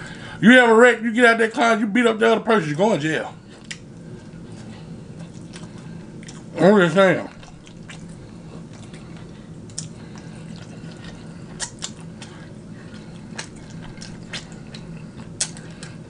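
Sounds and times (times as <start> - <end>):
steady low hum: 0.0 - 16.0
person chewing food: 3.4 - 6.6, 7.2 - 16.0
wet mouth clicks and smacks: 3.6 - 3.9, 5.3 - 6.5, 7.3 - 16.0.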